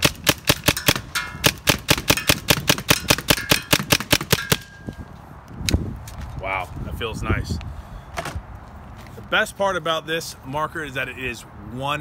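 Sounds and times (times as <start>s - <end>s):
paintball marker firing rapidly: 0.0s - 4.6s.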